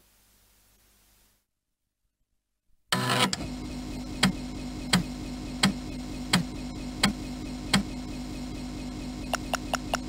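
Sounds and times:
steady low hum: 0:03.5 - 0:10.0.

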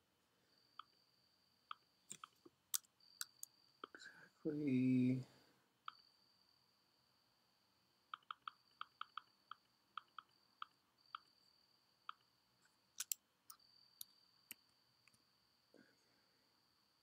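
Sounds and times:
faint high whine: 0:00.0 - 0:17.0
mouse clicks: 0:08.1 - 0:11.4, 0:12.1 - 0:12.3, 0:13.0 - 0:13.2.

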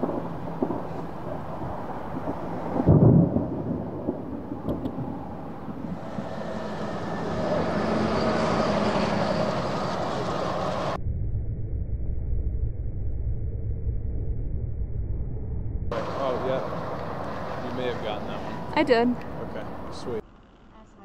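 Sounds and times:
thunder boom and rumble: 0:00.0 - 0:08.5
steady rushing noise: 0:00.0 - 0:20.2.

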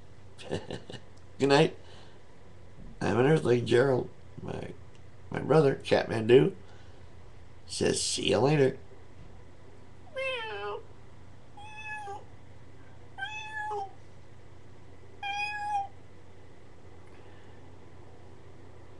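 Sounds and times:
cat meowing: 0:10.1 - 0:10.8, 0:11.6 - 0:12.3, 0:13.2 - 0:14.0, 0:15.2 - 0:16.0.

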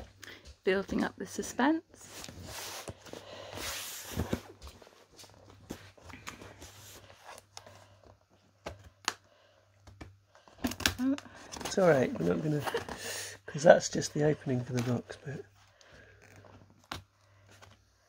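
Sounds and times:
cardboard rustling and scraping: 0:02.0 - 0:09.0, 0:10.5 - 0:13.1.

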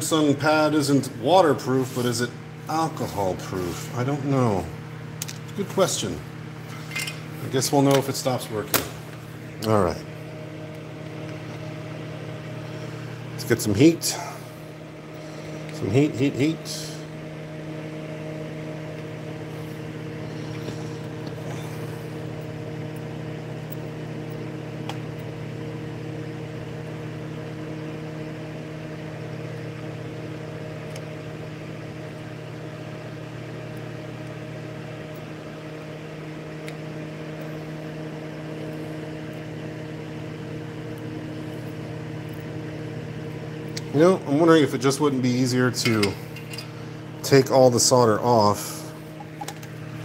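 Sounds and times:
small motor humming: 0:19.2 - 0:28.4.

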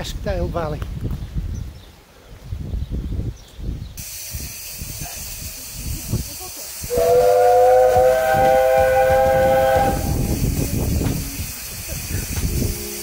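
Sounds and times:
steam hissing: 0:04.0 - 0:13.0
steam locomotive whistle: 0:06.9 - 0:10.4.

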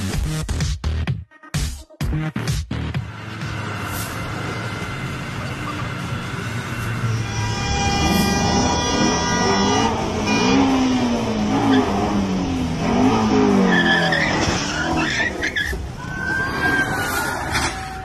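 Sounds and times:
car engine revving: 0:02.4 - 0:17.8
tyres squealing: 0:13.7 - 0:18.0.

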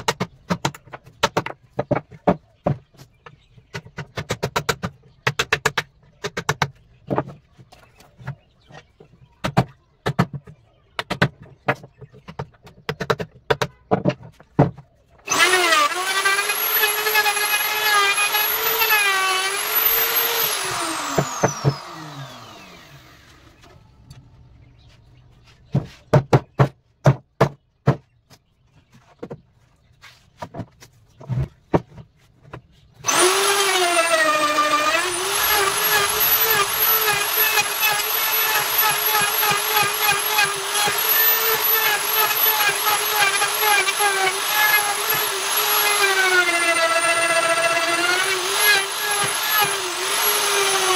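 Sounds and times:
electric router whining: 0:15.3 - 0:24.1, 0:33.0 - 0:50.9.

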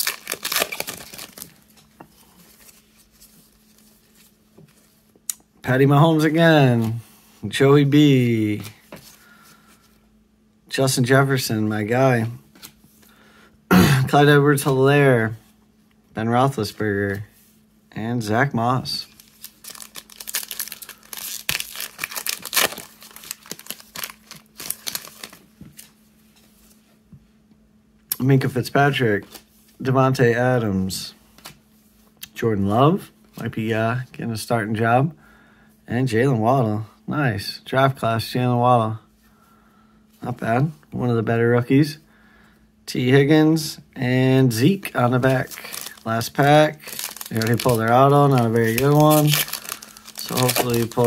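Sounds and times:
foil wrapper crinkling and tearing: 0:00.0 - 0:01.7, 0:19.0 - 0:25.9, 0:44.9 - 0:51.0
cards being handled: 0:19.1 - 0:25.9, 0:45.1 - 0:51.0.

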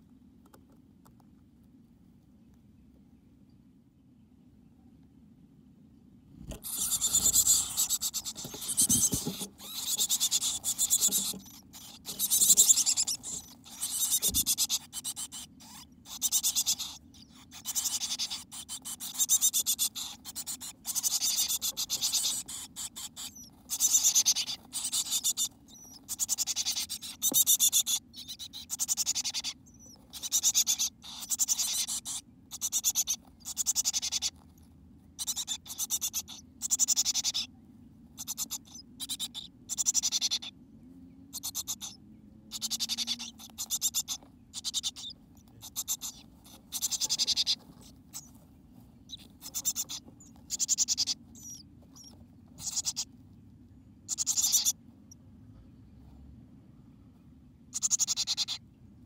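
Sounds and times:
chickadees hissing: 0:06.5 - 0:34.3, 0:42.6 - 0:48.3.

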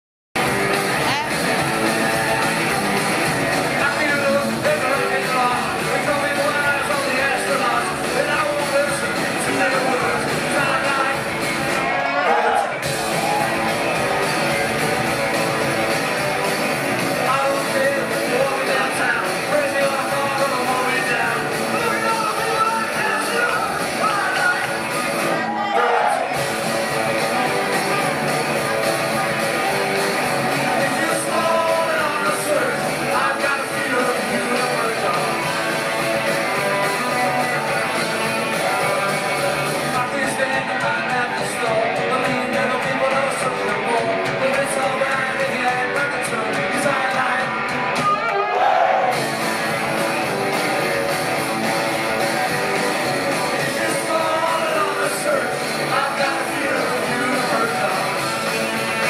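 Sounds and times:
electric guitars: 0:00.4 - 0:48.3, 0:49.0 - 0:59.0
bass guitar: 0:00.4 - 0:59.0
drums: 0:00.4 - 0:59.0
person singing: 0:01.0 - 0:11.4, 0:30.6 - 0:48.3, 0:53.3 - 0:59.0.

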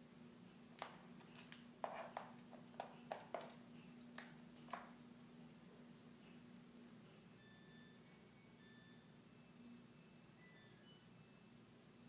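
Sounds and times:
faint steady hum: 0:00.0 - 0:12.0
bird feet tapping on floor: 0:00.8 - 0:05.0.

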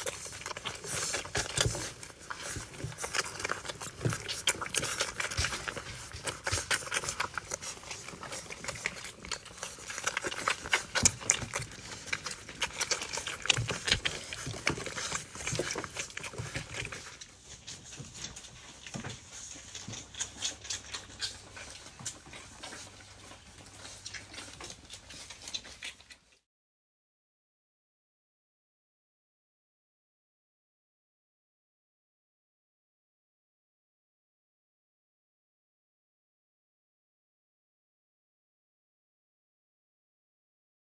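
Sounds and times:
puppies suckling: 0:00.0 - 0:26.5.

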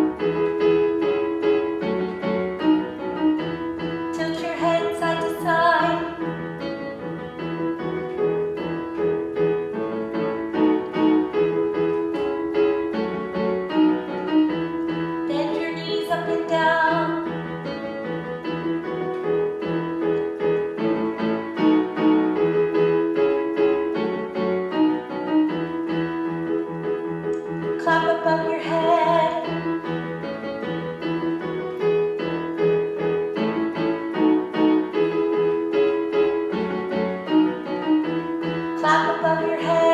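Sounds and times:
piano chords: 0:00.0 - 0:39.9
woman singing with vibrato: 0:04.2 - 0:06.2, 0:15.3 - 0:17.3, 0:27.8 - 0:29.5, 0:38.8 - 0:39.9.

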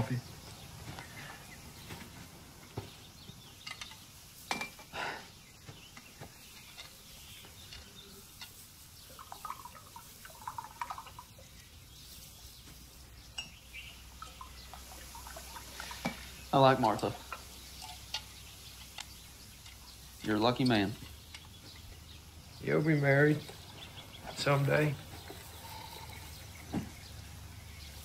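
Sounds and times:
liquid pouring into a cup: 0:09.1 - 0:11.4
china cups clinking: 0:13.3 - 0:13.6.

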